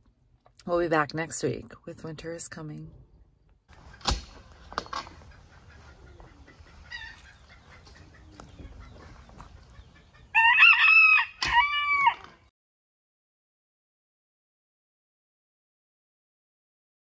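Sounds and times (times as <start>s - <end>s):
rooster crowing: 6.8s - 7.4s, 10.3s - 12.4s.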